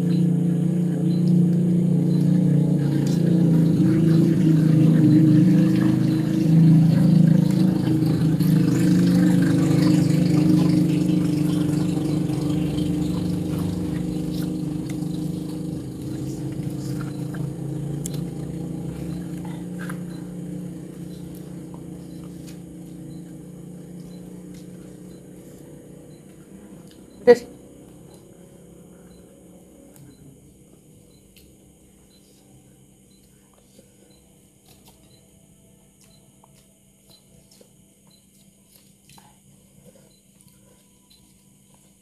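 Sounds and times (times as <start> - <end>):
motor vehicle engine hum: 0.0 - 32.8.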